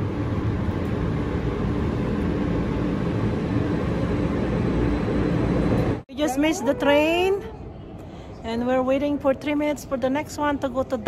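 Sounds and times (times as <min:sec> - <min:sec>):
steady low rumble: 0:00.0 - 0:08.6
faint hum: 0:00.0 - 0:11.0.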